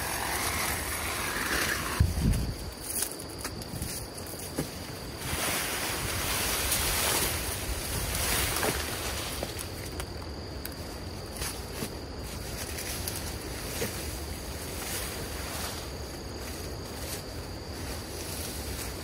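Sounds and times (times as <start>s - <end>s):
wind on microphone: 0.0s - 2.8s
weeds rustling and swishing: 0.0s - 10.2s, 10.9s - 19.0s.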